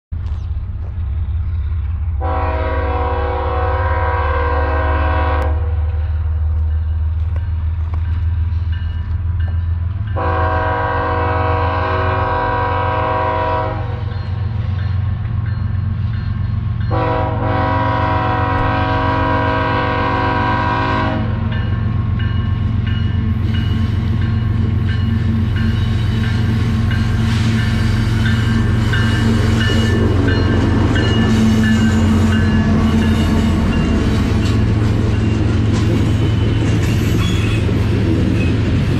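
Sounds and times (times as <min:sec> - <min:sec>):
train rumble: 0:00.1 - 0:38.9
locomotive air horn blasts: 0:02.2 - 0:05.8, 0:10.2 - 0:14.1, 0:16.9 - 0:21.5.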